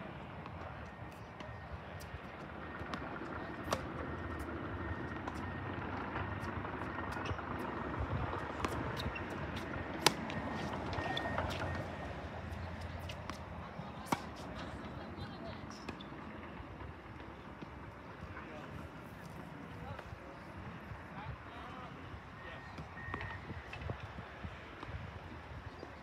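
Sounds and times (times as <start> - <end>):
rackets striking tennis ball: 2.8 - 4.5, 8.4 - 14.8
ball bouncing on hard court: 8.4 - 11.8.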